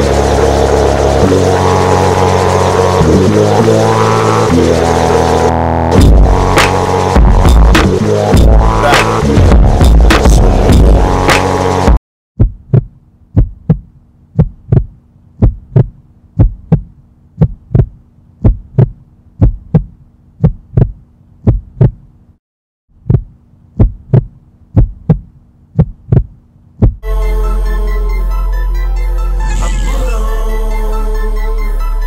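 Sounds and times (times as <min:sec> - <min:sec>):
steady low hum: 0:00.0 - 0:22.4, 0:23.0 - 0:32.0
heartbeat thumps: 0:07.2 - 0:11.2, 0:12.4 - 0:22.1, 0:23.0 - 0:27.0.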